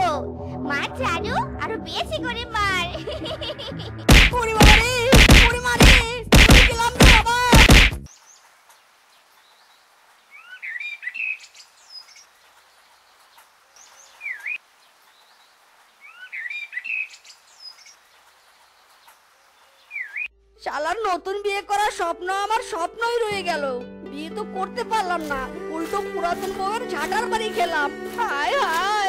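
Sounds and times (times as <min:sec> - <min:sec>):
sharp strikes: 0:04.1 - 0:08.1
birds chirping: 0:06.7 - 0:20.3.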